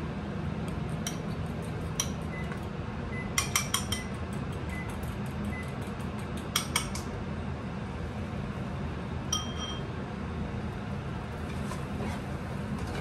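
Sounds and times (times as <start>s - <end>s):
steady low hum: 0.0s - 13.0s
fork clinking against ceramic bowl: 1.0s - 2.4s, 3.3s - 5.8s, 6.4s - 7.0s, 9.3s - 9.8s.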